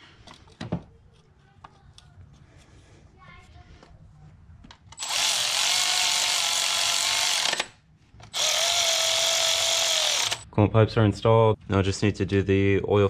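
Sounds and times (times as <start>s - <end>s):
power tool whining: 5.0s - 10.4s.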